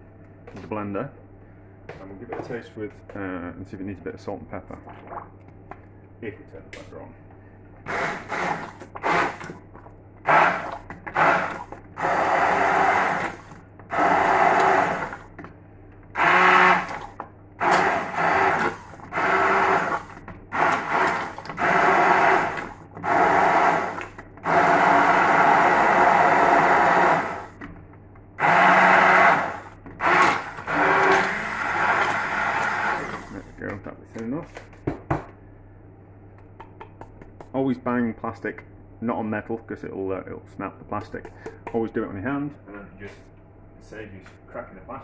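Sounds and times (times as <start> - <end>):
kitchen blender pulsing: 7.8 - 9.6, 10.2 - 15.3, 16.2 - 27.6, 28.4 - 33.5.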